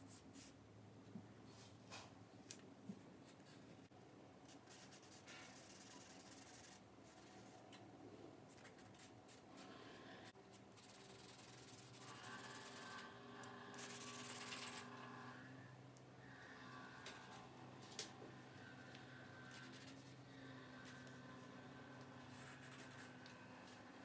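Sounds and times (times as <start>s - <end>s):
charcoal scratching on paper: 4.6s - 7.6s, 10.5s - 13.1s, 13.8s - 14.8s, 19.4s - 20.2s, 22.2s - 23.3s.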